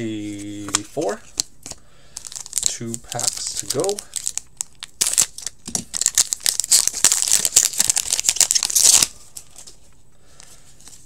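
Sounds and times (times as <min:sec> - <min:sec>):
plastic wrapper tearing and crinkling: 0:00.5 - 0:09.8.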